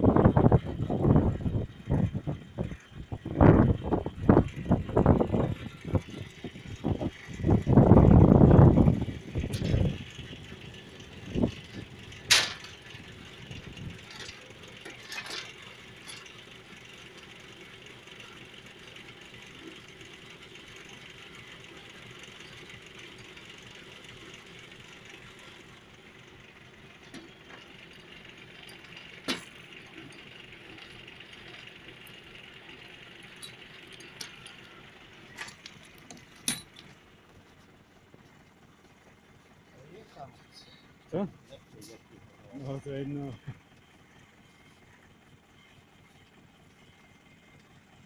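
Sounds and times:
tractor engine running: 0.0s - 48.0s
chain clanks and knocks: 9.4s - 17.5s, 26.9s - 37.0s
winch reeling in cable: 27.0s - 37.0s.

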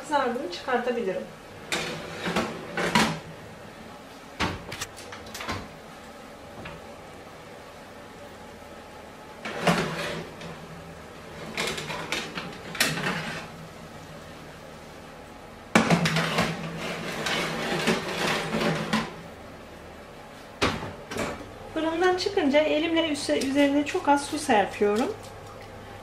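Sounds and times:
metal baking trays clattering: 1.6s - 3.2s, 9.5s - 10.5s, 11.3s - 13.5s, 15.8s - 19.2s
tray scraping on wire racks: 1.6s - 3.2s, 9.4s - 10.6s, 11.3s - 13.6s, 15.8s - 19.2s.

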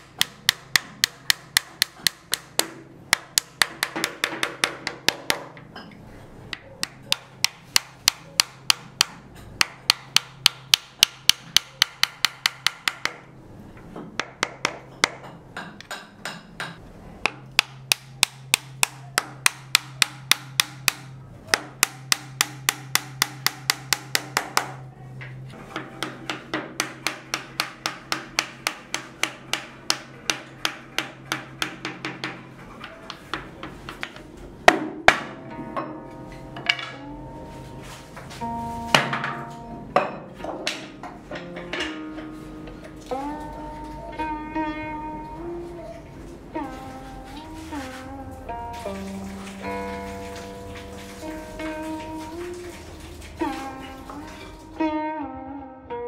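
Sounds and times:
small hammer tapping on wood: 0.2s - 5.6s, 6.5s - 13.2s, 14.1s - 24.8s, 25.8s - 32.5s.

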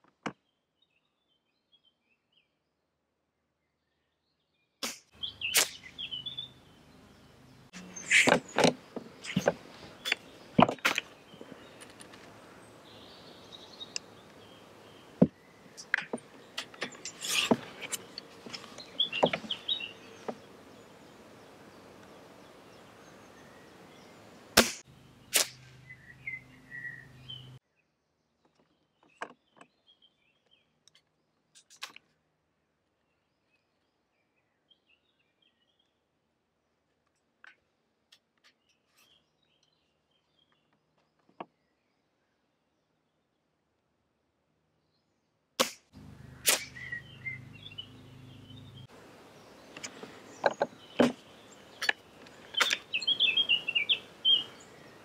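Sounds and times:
air rifle shot: 4.8s - 5.9s, 24.6s - 25.8s, 45.6s - 47.0s
sharp crack: 4.8s - 6.0s, 24.6s - 26.0s, 45.6s - 47.4s.

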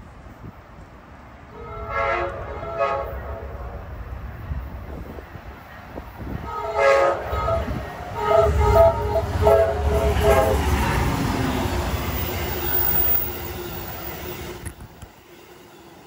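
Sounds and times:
diesel train passing: 0.0s - 16.0s
locomotive air horn blasts: 1.5s - 3.5s, 6.4s - 10.7s.

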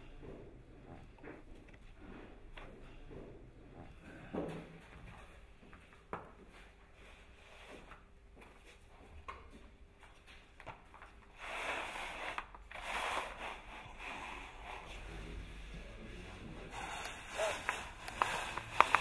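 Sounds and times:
foam float rubbing plastic mat: 11.3s - 15.1s, 16.7s - 19.0s.

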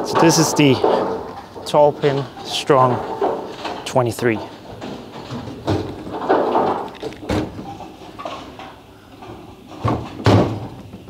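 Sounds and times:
bowling balls and pins clattering: 0.0s - 11.0s.

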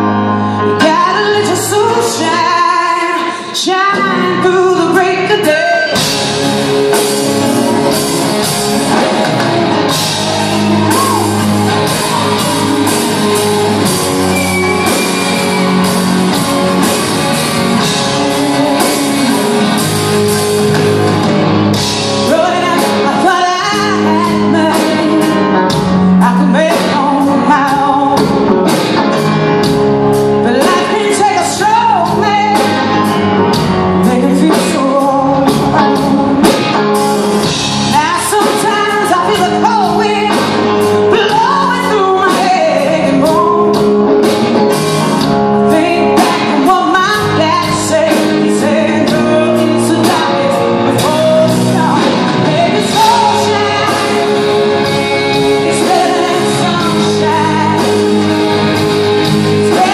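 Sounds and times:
live rock band playing: 0.0s - 59.9s
woman singing: 0.6s - 6.4s, 16.5s - 20.2s, 21.8s - 28.5s, 30.4s - 36.8s, 37.4s - 43.9s, 45.6s - 58.7s, 59.4s - 59.9s.

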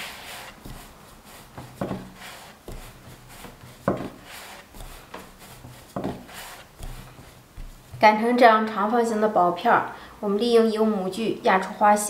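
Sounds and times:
rolling pin rolling dough: 0.0s - 8.4s.

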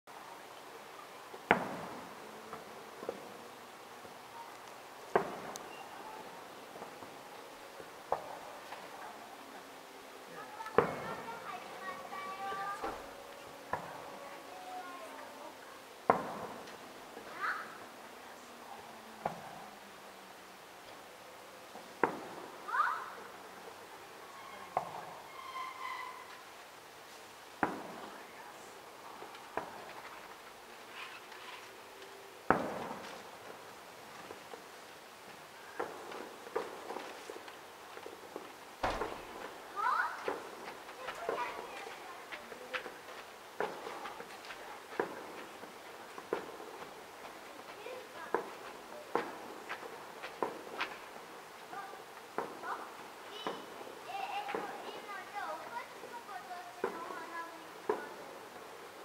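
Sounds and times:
distant fireworks bangs: 1.3s - 4.2s, 5.1s - 7.4s, 10.4s - 15.2s, 16.0s - 17.4s, 21.8s - 26.3s, 27.6s - 28.3s, 32.4s - 34.7s, 35.3s - 59.0s.

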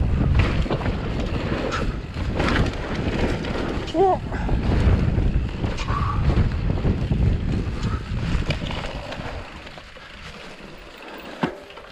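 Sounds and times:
wind buffeting microphone: 0.0s - 10.5s
bike rattling: 0.0s - 11.9s
bike tyres rumbling on dirt: 0.0s - 11.9s.

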